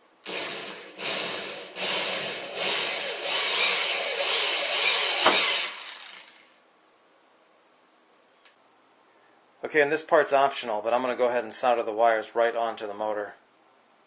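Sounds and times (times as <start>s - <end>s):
electric drill boring: 0.2s - 6.6s.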